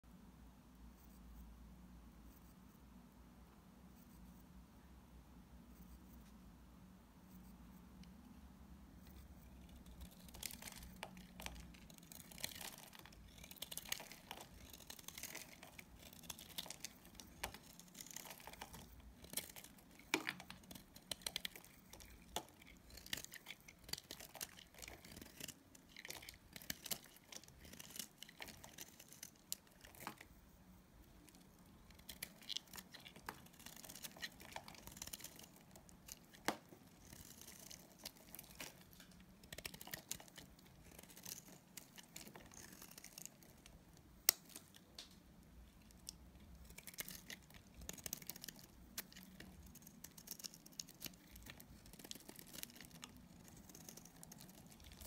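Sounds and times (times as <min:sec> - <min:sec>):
knife scraping soap: 0:09.1 - 0:30.3, 0:31.2 - 0:43.6.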